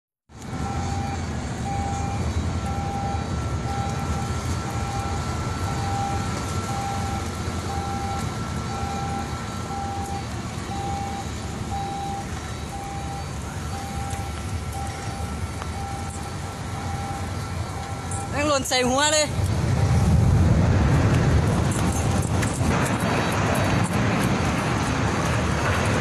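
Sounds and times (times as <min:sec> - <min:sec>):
steady low rumble: 0:00.3 - 0:26.0
electronic warning beeps: 0:00.5 - 0:20.2.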